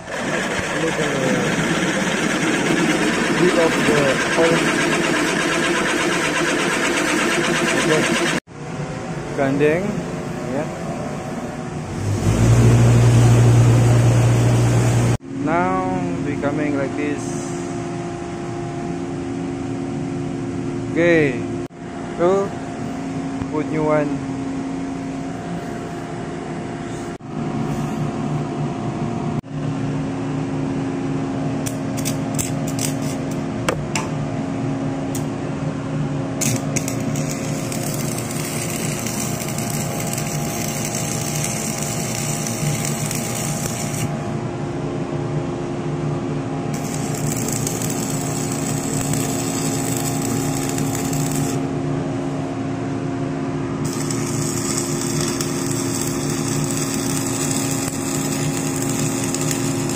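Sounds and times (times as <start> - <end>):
machinery hum: 0.0 - 59.9
welding arc crackling and hissing: 0.3 - 6.0, 36.4 - 44.1, 46.8 - 51.6, 53.8 - 59.9.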